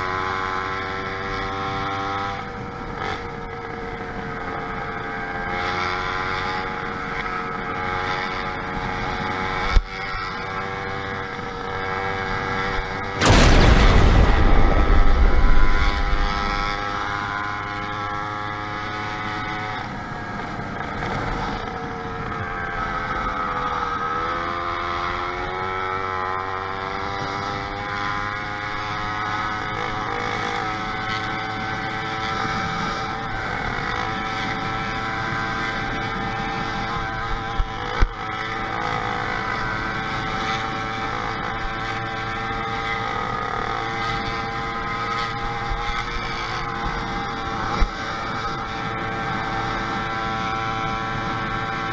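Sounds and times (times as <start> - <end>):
small bicycle engine running: 0.0 - 13.3, 16.0 - 51.9
sharp knocks: 13.2 - 17.4.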